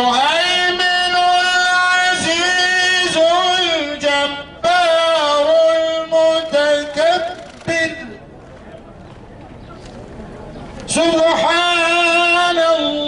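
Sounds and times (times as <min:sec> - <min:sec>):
man chanting melodically: 0:00.0 - 0:08.2, 0:10.9 - 0:13.0.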